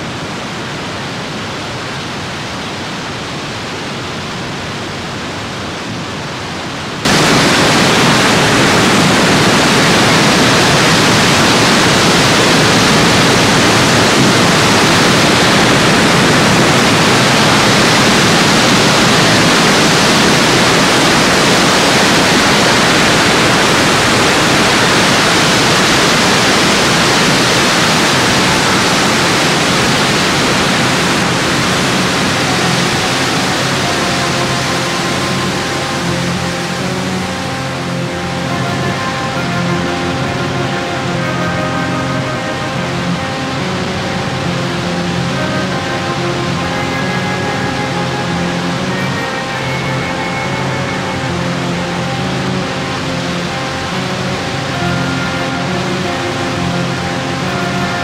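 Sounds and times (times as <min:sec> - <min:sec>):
rushing wind: 0:00.0 - 0:58.0.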